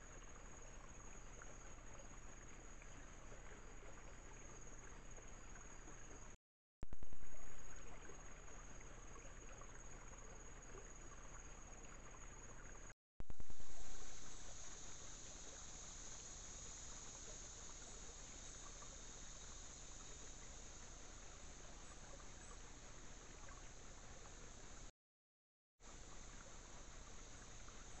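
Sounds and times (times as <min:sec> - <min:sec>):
high insect drone: 0:07.0 - 0:11.8, 0:13.2 - 0:24.9
water trickling over rocks: 0:07.1 - 0:24.9, 0:25.8 - 0:28.0.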